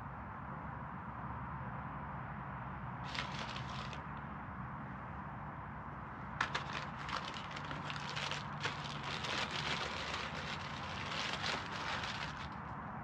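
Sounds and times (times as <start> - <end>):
paper packet crinkling: 3.1 - 4.0, 6.4 - 12.8.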